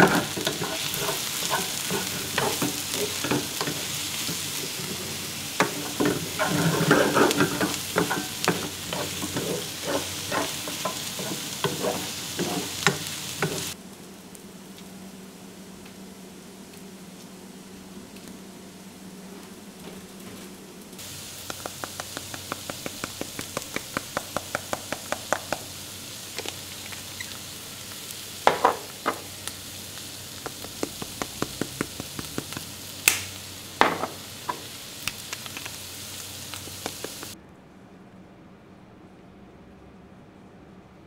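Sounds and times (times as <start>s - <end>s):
utensils knocking against pan: 0.0s - 13.8s, 21.4s - 25.7s, 28.5s - 29.3s, 30.4s - 32.6s, 33.8s - 34.7s
vegetables sizzling in a frying pan: 0.0s - 18.3s, 20.9s - 37.4s.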